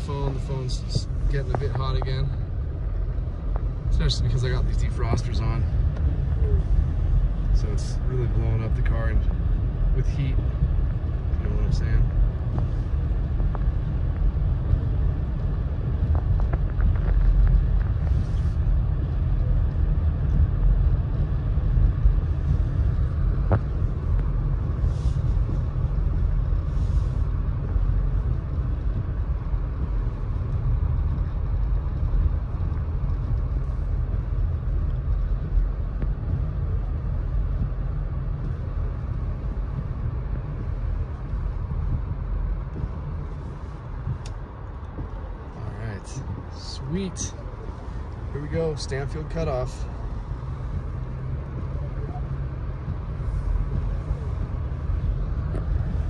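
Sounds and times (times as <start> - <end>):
car engine and tyre rumble: 0.0 - 56.0
windshield wipers swishing: 12.1 - 56.0.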